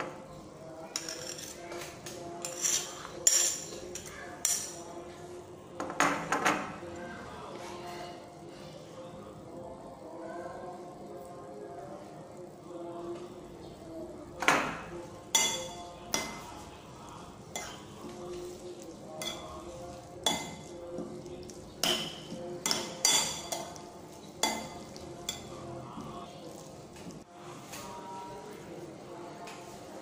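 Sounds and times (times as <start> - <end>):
sharp cutlery clinks: 1.0 - 1.7, 2.4 - 4.8
cutlery scraping on ceramic plate: 1.0 - 4.8.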